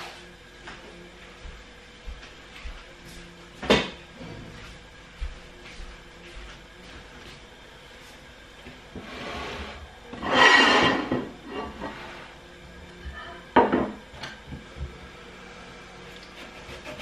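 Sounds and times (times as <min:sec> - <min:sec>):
kitchenware sliding on counter: 0:08.9 - 0:12.4.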